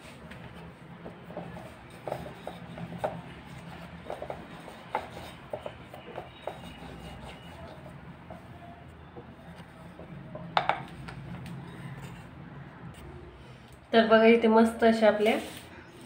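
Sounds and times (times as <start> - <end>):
rolling pin knocking on board: 10.0 - 10.9.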